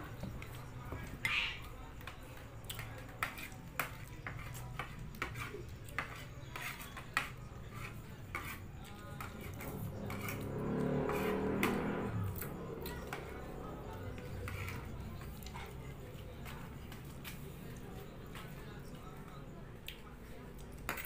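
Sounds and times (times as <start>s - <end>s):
cutlery clinking on plastic plates: 1.9s - 10.4s, 20.7s - 21.0s.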